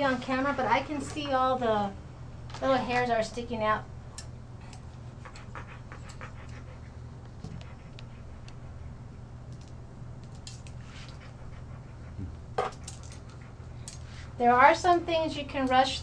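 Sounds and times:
steady low hum: 0:00.0 - 0:16.0
dog panting softly: 0:04.7 - 0:09.4, 0:10.7 - 0:14.4.

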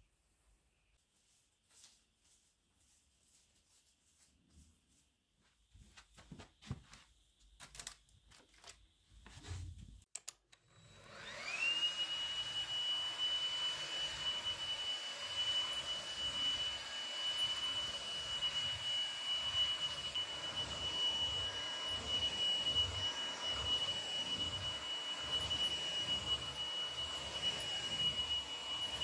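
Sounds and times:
soft taps and rustles: 0:01.0 - 0:10.0
stick vacuum cleaner whine: 0:10.5 - 0:29.0.

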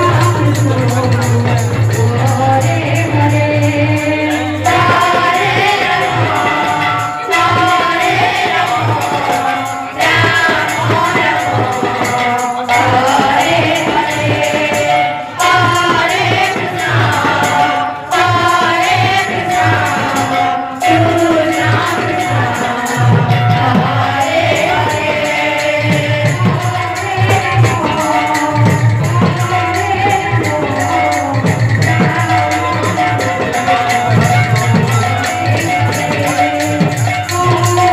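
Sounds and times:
drum steady beat: 0:00.0 - 0:37.9
jingling percussion: 0:00.0 - 0:37.9
women singing devotional melody: 0:00.0 - 0:37.9.

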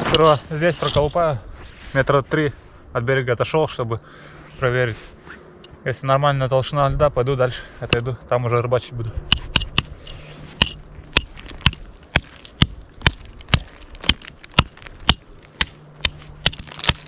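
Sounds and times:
hatchet chopping into ice: 0:10.6 - 0:17.0.

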